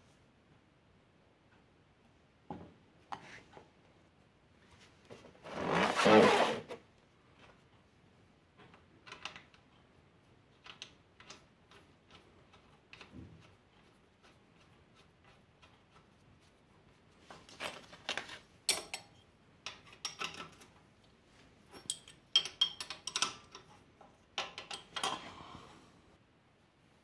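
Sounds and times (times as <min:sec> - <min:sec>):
spanner clinking on metal: 0:18.7 - 0:20.6, 0:21.7 - 0:23.7, 0:24.4 - 0:25.2.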